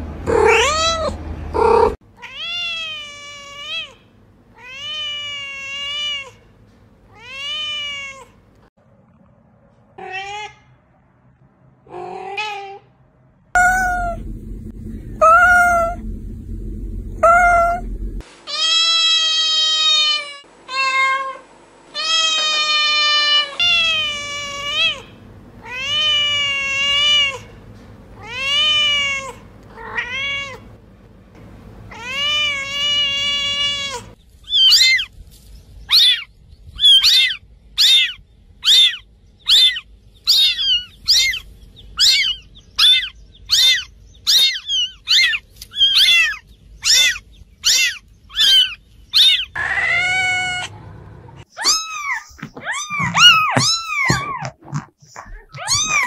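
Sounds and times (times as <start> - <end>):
cats meowing: 0.3 - 4.0, 13.6 - 14.3, 15.2 - 16.0, 17.2 - 17.9, 22.0 - 27.5, 28.2 - 30.7, 31.9 - 35.1, 35.9 - 41.4, 42.0 - 50.7, 51.4 - 56.0
high kitten mews: 17.2 - 17.9, 51.6 - 56.0.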